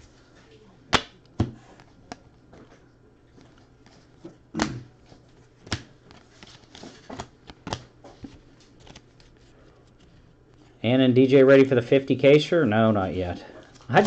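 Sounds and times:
cards flicking and snapping: 0:00.9 - 0:02.3, 0:05.6 - 0:07.9.

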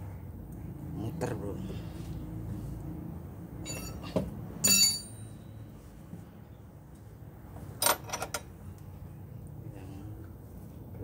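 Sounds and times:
wrench clinking against metal: 0:03.6 - 0:05.4.

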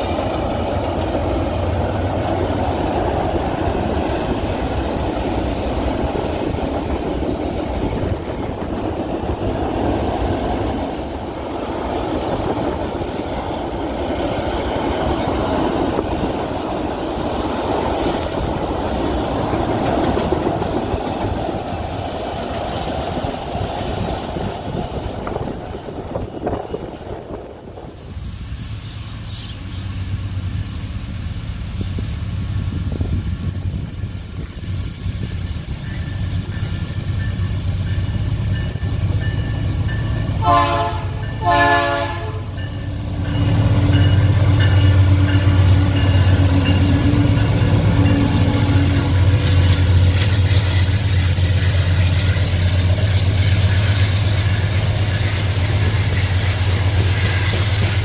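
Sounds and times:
diesel locomotive rumbling: 0:00.0 - 0:58.0
train wagons rolling past: 0:00.0 - 0:58.0
train horn blasts: 0:40.4 - 0:42.7.

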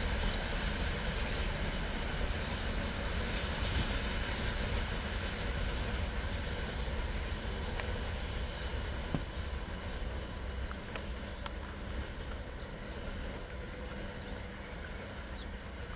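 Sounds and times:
train wheels rumbling: 0:00.0 - 0:15.9
faint sharp clicks: 0:07.7 - 0:08.0, 0:10.6 - 0:11.8.

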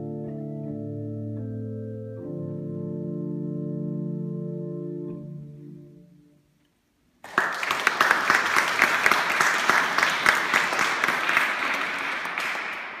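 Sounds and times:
audience applauding: 0:07.2 - 0:13.0.

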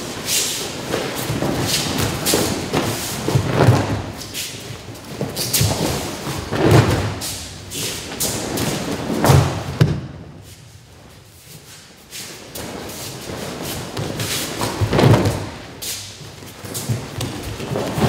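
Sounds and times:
feet sliding on a mat: 0:00.0 - 0:18.0
body thudding on a mat: 0:01.3 - 0:04.2, 0:08.3 - 0:10.2, 0:13.9 - 0:15.6.

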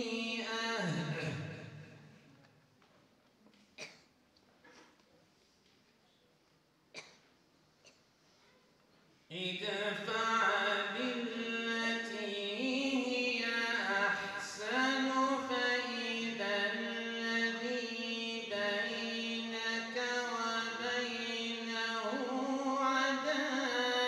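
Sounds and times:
man chanting melodically: 0:00.0 - 0:01.8, 0:09.3 - 0:24.0.

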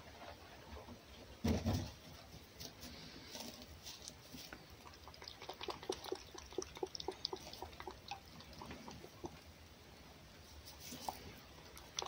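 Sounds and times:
fox lapping and chewing: 0:03.4 - 0:09.7, 0:10.6 - 0:12.0.

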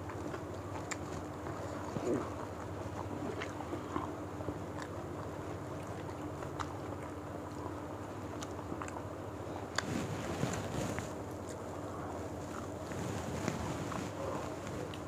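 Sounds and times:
chewing clicks and smacks: 0:00.0 - 0:09.9
low hum and hiss: 0:00.0 - 0:15.0.

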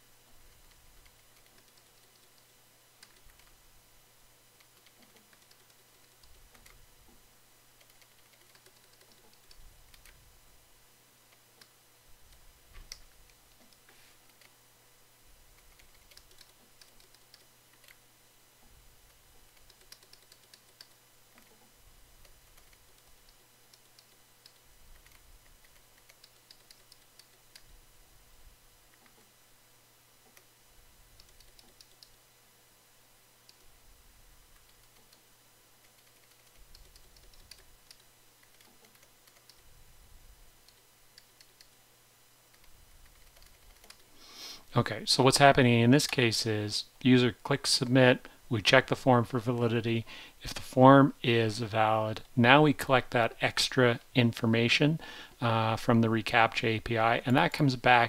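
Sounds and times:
faint keyboard typing: 0:00.3 - 0:03.6, 0:04.6 - 0:10.3, 0:11.3 - 0:14.6, 0:15.5 - 0:18.0, 0:18.6 - 0:27.8, 0:28.9 - 0:29.3, 0:30.2 - 0:32.2, 0:33.4 - 0:33.8, 0:34.5 - 0:39.8, 0:40.6 - 0:41.8, 0:42.5 - 0:44.2, 0:45.9 - 0:46.4.

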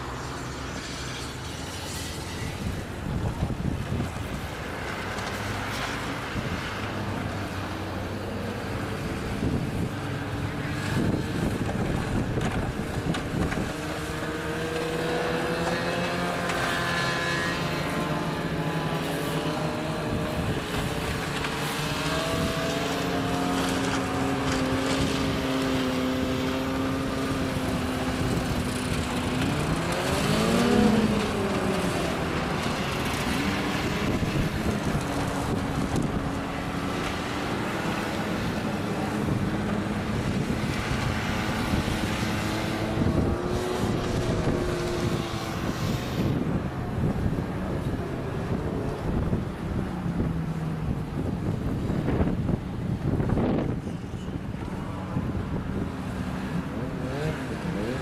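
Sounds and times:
snowmobile engine revving: 0:00.0 - 0:49.3, 0:56.0 - 0:58.0
snowmobile engines running: 0:00.0 - 0:58.0.

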